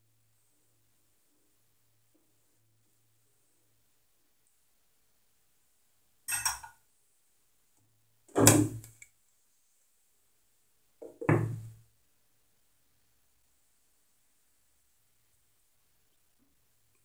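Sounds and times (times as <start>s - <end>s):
kitchenware clanking: 6.3s - 6.8s.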